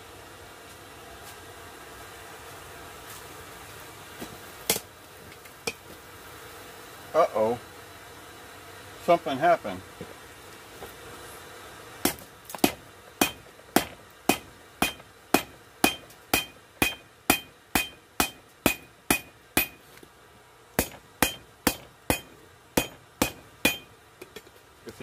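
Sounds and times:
hammer striking an anvil: 12.1 - 19.8, 20.8 - 24.4.

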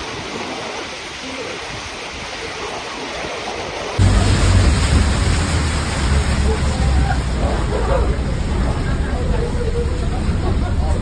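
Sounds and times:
water spurting onto floor: 0.0 - 9.3
floodwater rushing: 0.0 - 11.0
heavy rain: 0.0 - 11.0
steady low rumble: 4.0 - 11.0.

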